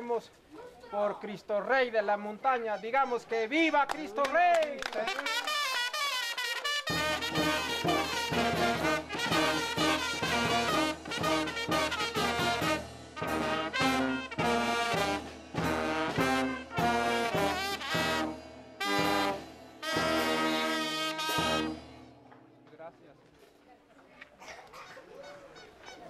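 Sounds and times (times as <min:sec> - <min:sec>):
brass band playing: 0:04.8 - 0:22.2
bass drum and timbales: 0:06.8 - 0:22.7.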